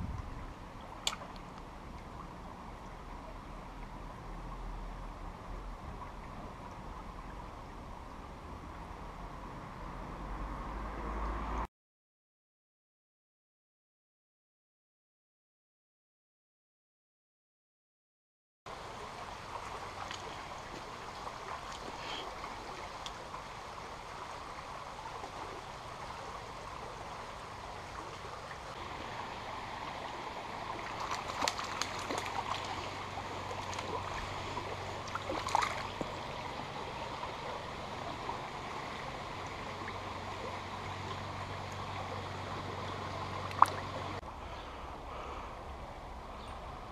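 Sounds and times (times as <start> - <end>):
stream running over stones: 0.0 - 11.6, 18.7 - 46.9.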